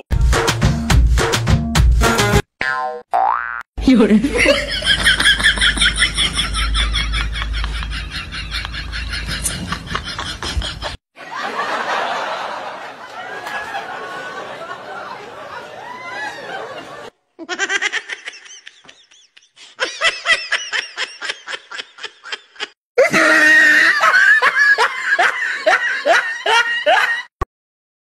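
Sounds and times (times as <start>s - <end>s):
background noise: 3.8s - 27.2s
rapid ha-ha laughing: 4.3s - 27.3s.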